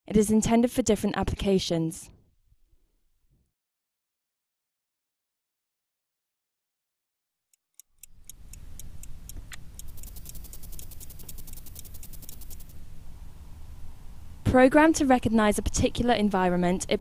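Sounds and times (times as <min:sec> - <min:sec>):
clock-like ticking: 0:07.6 - 0:12.7
low steady hum: 0:08.1 - 0:17.0.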